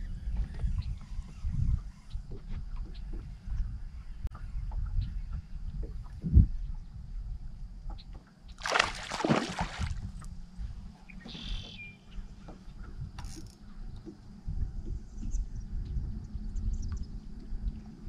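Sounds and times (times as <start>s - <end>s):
wind rumble on microphone: 0.0s - 18.0s
water splash beside boat: 8.5s - 10.3s.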